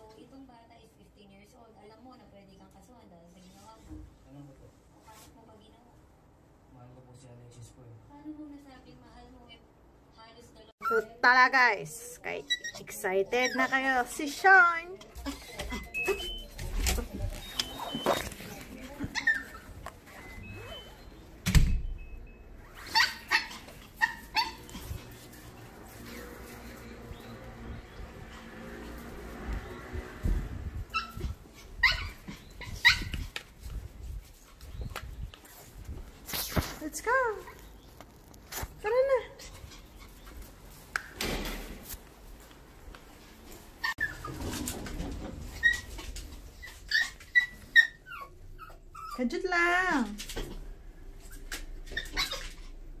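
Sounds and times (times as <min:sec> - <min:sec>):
dog whining: 0:12.4 - 0:14.0, 0:15.0 - 0:16.5, 0:17.4 - 0:21.3, 0:22.6 - 0:25.2, 0:30.9 - 0:33.4, 0:43.8 - 0:44.4, 0:45.4 - 0:49.3, 0:51.2 - 0:52.8
thump: 0:41.2 - 0:41.8.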